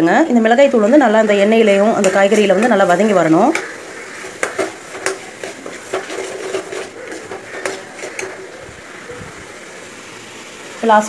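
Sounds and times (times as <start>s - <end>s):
soft sizzle: 0.0s - 11.0s
spoon scraping metal pan: 1.4s - 9.1s.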